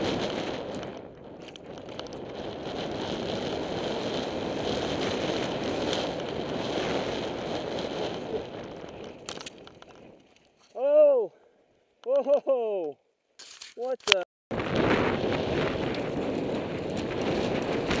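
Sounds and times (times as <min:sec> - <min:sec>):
wind rushing over microphone: 0:00.0 - 0:10.2, 0:14.5 - 0:18.0
bike rattling: 0:00.0 - 0:18.0
bike tyre noise: 0:00.0 - 0:18.0
sharp clicks: 0:12.8 - 0:14.3.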